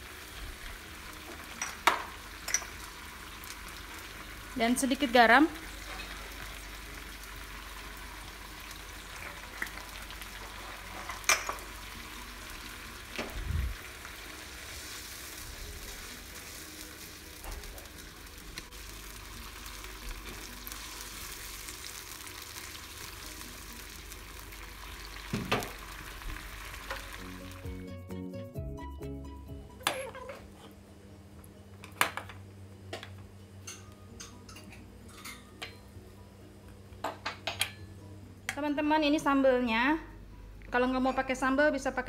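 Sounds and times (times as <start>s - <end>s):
sauce sizzling in a wok: 0.0s - 27.8s.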